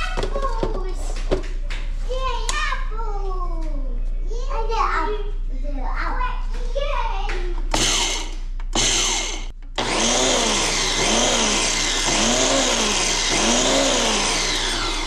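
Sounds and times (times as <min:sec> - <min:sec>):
blender motor running: 0:07.7 - 0:15.0.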